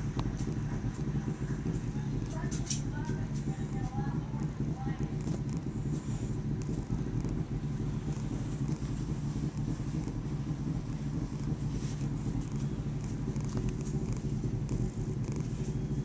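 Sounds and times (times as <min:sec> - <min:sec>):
cat purring: 0:00.0 - 0:16.0
fur and blanket rustling: 0:11.6 - 0:14.4.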